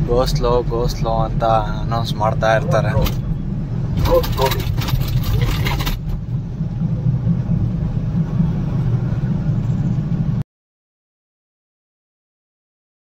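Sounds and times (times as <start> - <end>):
engine and road drone: 0.0 - 10.4.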